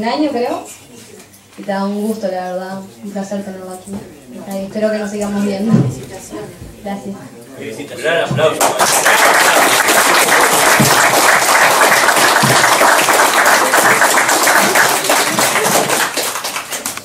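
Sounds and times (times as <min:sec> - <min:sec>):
audience applauding: 0:08.6 - 0:17.0.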